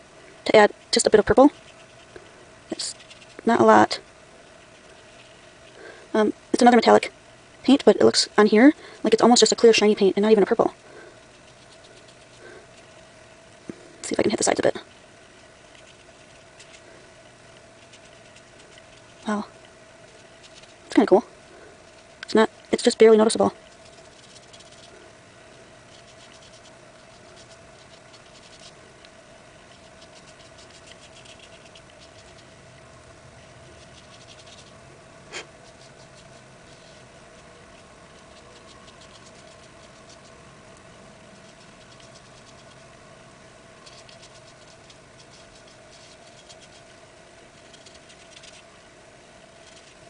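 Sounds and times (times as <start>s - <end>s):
faint hum: 0.0s - 50.0s
paintbrush scratching on paper: 23.6s - 24.9s, 25.9s - 28.8s, 29.7s - 32.5s, 33.7s - 40.3s, 43.8s - 46.9s.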